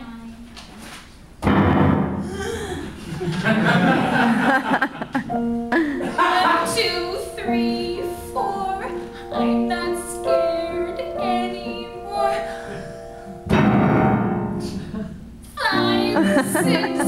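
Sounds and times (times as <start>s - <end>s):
piano accompaniment: 3.7s - 17.0s
woman singing show tune: 6.2s - 12.5s, 15.6s - 17.0s.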